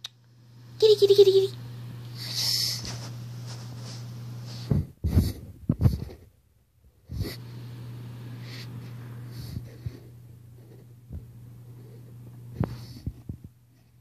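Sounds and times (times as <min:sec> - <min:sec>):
steady low hum: 0:00.0 - 0:14.0
muffled thumps and rubbing: 0:02.8 - 0:06.4, 0:09.5 - 0:13.6.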